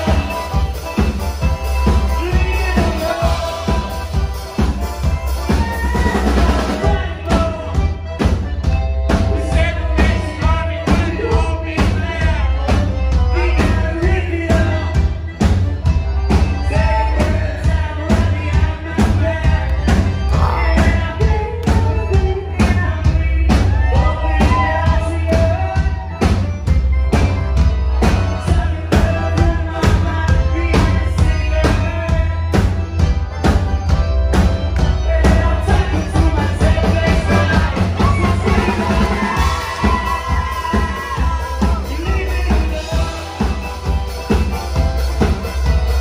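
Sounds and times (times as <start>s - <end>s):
accordion: 0.0s - 46.0s
drum kit: 0.0s - 46.0s
upright double bass: 0.0s - 46.0s.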